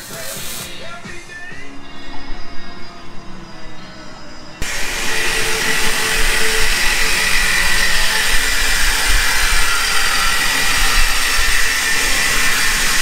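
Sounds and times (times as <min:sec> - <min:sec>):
angle grinder cutting metal: 0:04.6 - 0:13.0.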